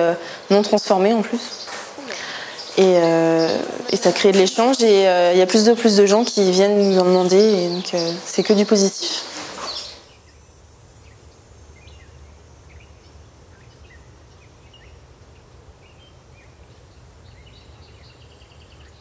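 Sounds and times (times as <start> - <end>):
bird chirps: 1.4 - 10.4.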